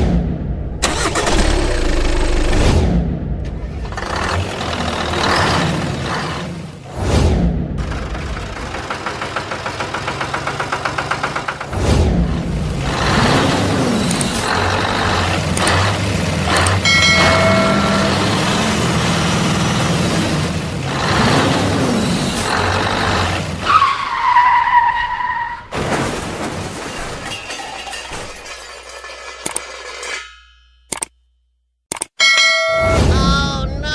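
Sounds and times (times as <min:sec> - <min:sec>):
truck engine running: 0:00.8 - 0:06.9, 0:07.8 - 0:23.7.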